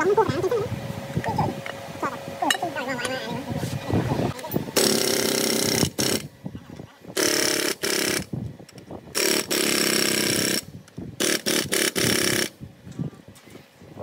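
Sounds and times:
pneumatic impact wrench: 0:04.8 - 0:06.3, 0:07.1 - 0:12.6.

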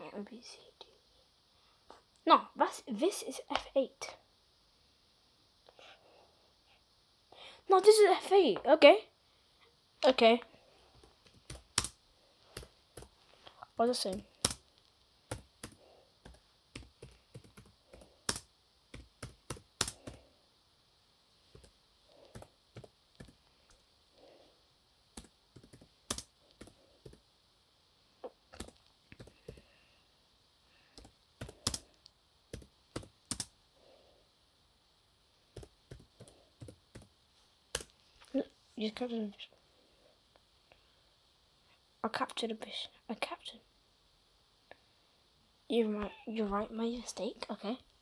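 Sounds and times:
laptop keyboard keys clicking: 0:11.2 - 0:12.0, 0:15.3 - 0:20.2, 0:25.2 - 0:27.2, 0:31.0 - 0:31.8, 0:32.5 - 0:33.5.

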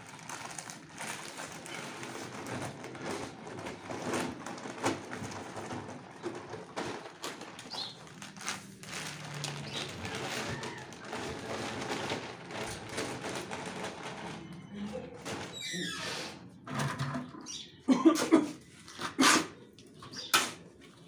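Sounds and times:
paper rustling: 0:00.0 - 0:15.6.

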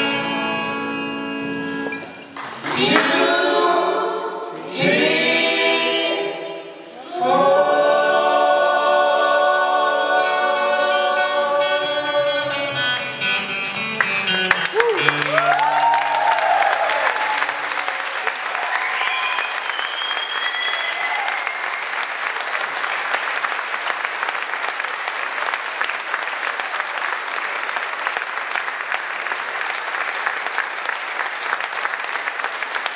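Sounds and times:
audience applauding: 0:02.3 - 0:03.2, 0:14.0 - 0:32.9
band held notes: 0:08.9 - 0:15.7
audience cheers: 0:14.6 - 0:23.1.

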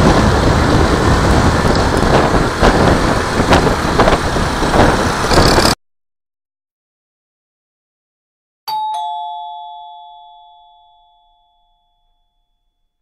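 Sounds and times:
two-note doorbell chime: 0:08.7 - 0:13.0.

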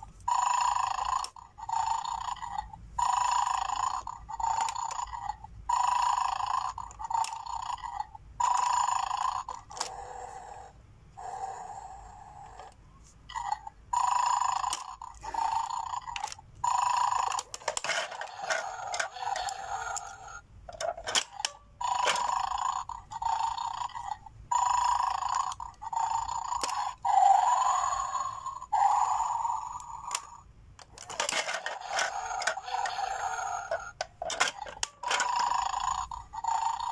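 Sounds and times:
toy dog growling: 0:00.0 - 0:36.9.

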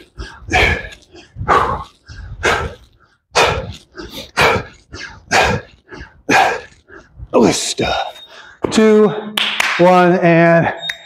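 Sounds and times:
man breathing hard: 0:00.0 - 0:07.3, 0:08.2 - 0:08.6.

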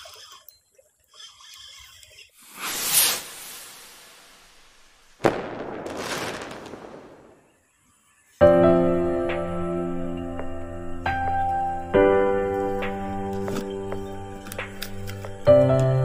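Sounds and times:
noisy whoosh: 0:02.4 - 0:07.4
music: 0:08.4 - 0:16.0.

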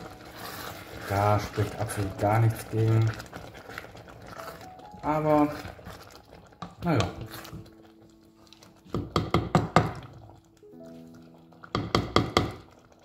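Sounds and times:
soft background music: 0:00.0 - 0:13.0
wooden spoon knocking on steel pot: 0:06.6 - 0:07.7, 0:08.8 - 0:10.3, 0:11.6 - 0:12.8.

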